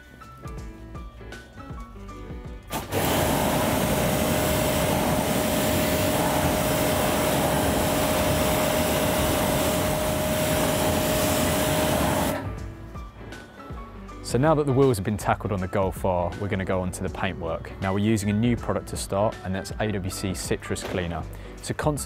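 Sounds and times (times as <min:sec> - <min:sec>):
water jet hissing onto wheel: 0:02.7 - 0:12.6
pressure washer motor whine: 0:02.7 - 0:12.7.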